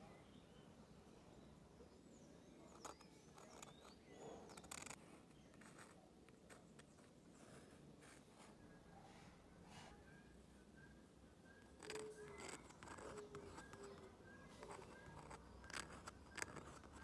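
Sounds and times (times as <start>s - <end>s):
birds chirping: 0.0s - 17.0s
pen nib scratching paper: 2.7s - 8.6s, 11.6s - 17.0s.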